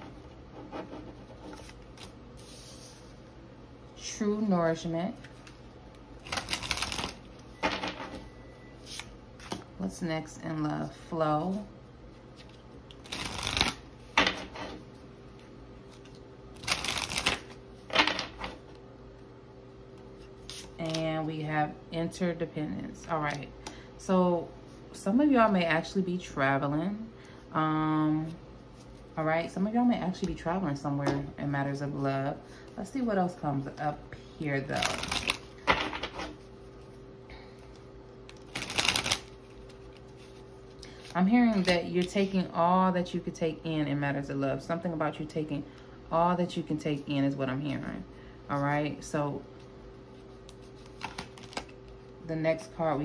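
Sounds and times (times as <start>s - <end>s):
faint steady hum: 0.0s - 53.0s
cards being shuffled: 1.2s - 3.0s, 6.2s - 7.2s, 12.3s - 14.5s, 15.4s - 18.6s, 20.3s - 21.0s, 34.8s - 36.5s, 38.3s - 42.1s, 50.1s - 52.1s.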